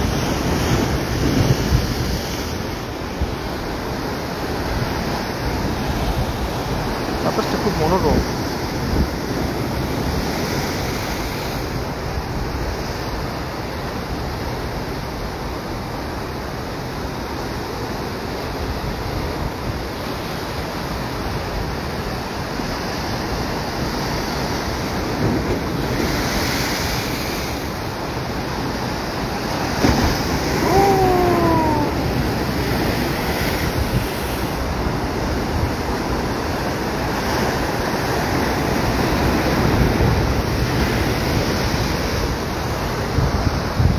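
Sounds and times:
wind buffeting microphone: 0.0s - 12.6s, 29.4s - 43.9s
ocean waves breaking on rocks: 0.0s - 43.9s.

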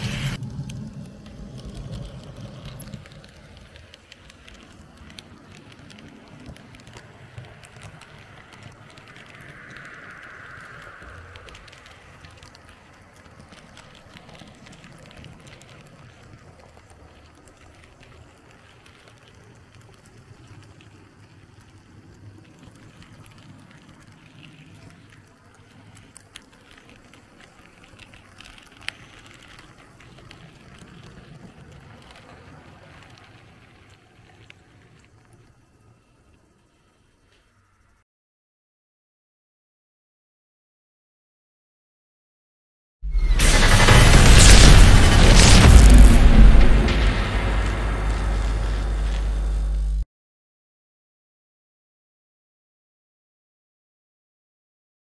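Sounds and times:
model train wheels rumbling: 0.0s - 35.1s.

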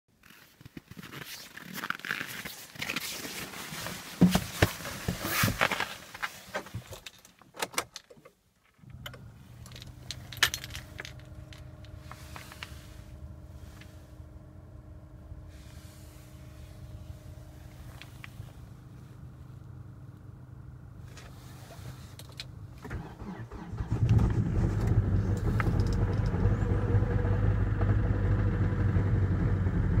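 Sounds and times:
rustling in car seat: 0.2s - 7.2s, 8.9s - 14.4s, 15.4s - 19.6s, 21.0s - 23.7s
diesel engine starting and idling: 8.8s - 30.0s
keys jangling: 9.6s - 12.0s.

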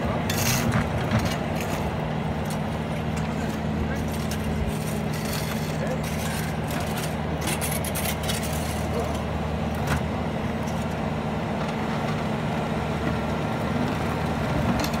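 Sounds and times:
diesel engine running steadily: 0.0s - 15.0s.

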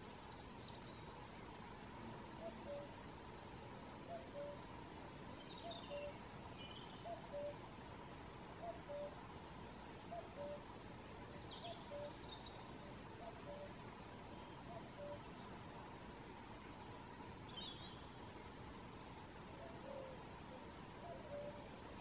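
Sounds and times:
cuckoo calling: 2.4s - 2.9s, 4.0s - 4.6s, 5.6s - 6.2s, 6.9s - 7.6s, 8.6s - 9.2s, 10.1s - 10.7s, 11.4s - 12.4s, 13.2s - 13.7s, 14.7s - 15.3s, 19.6s - 20.2s, 21.0s - 21.7s.

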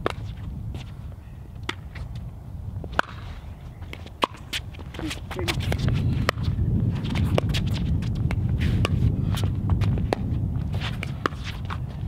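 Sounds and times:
steady low rumble: 0.0s - 12.0s
sneakers scuffing on hard court: 2.9s - 12.0s.

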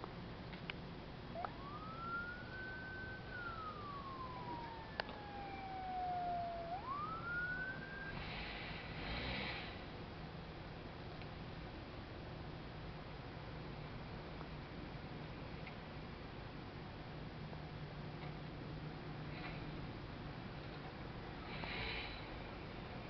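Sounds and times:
emergency vehicle siren wailing: 1.3s - 9.0s.

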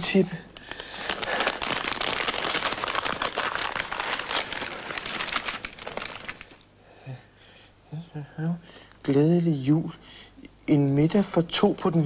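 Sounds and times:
wrapping paper crinkling: 0.6s - 6.7s.

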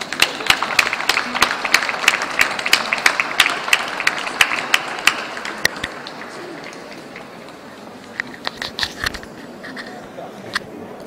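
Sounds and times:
hands clapping: 0.0s - 8.6s.

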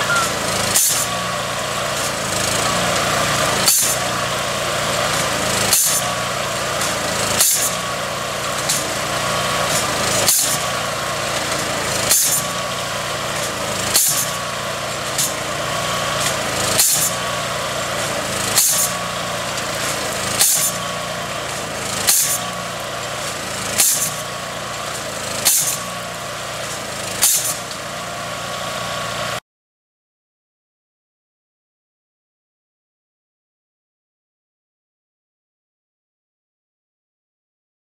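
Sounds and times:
hammer striking steel pile: 0.0s - 1.1s, 3.7s - 4.0s, 5.7s - 6.1s, 6.8s - 7.8s, 9.7s - 10.6s, 12.1s - 12.6s, 13.4s - 14.4s, 16.8s - 17.2s, 18.6s - 19.0s, 19.8s - 20.8s, 22.1s - 22.5s, 23.8s - 24.2s, 25.4s - 25.9s, 27.2s - 27.6s
machine engine running: 0.0s - 29.4s.

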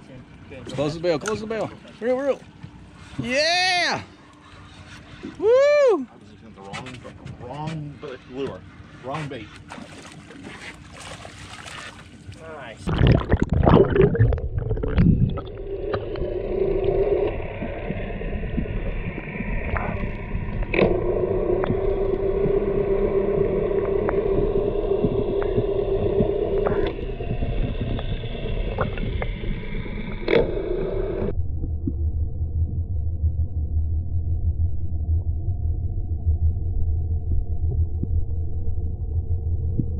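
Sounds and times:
muffled underwater hum: 12.0s - 39.9s
dull low rumble: 12.8s - 39.9s.

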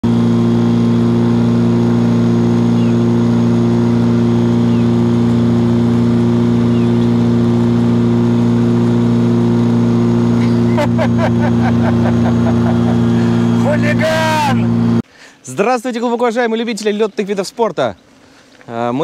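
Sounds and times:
propeller aircraft engine droning: 0.0s - 15.1s.

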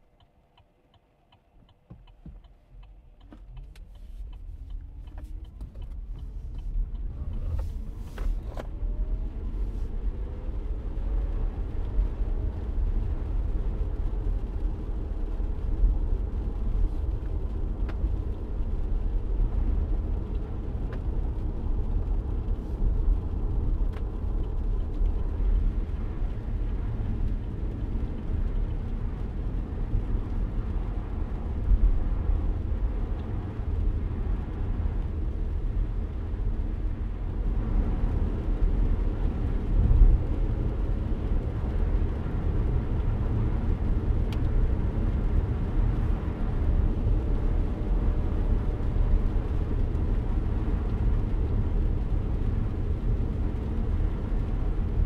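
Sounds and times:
tyres on wet road: 0.1s - 55.0s.

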